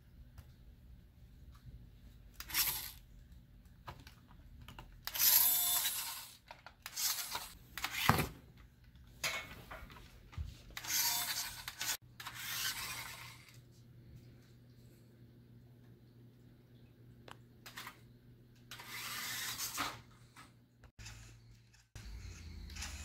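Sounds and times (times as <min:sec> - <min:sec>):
toy truck motor whirring: 0:02.4 - 0:03.0, 0:05.0 - 0:08.1, 0:10.8 - 0:13.6, 0:18.7 - 0:20.0, 0:21.0 - 0:23.0.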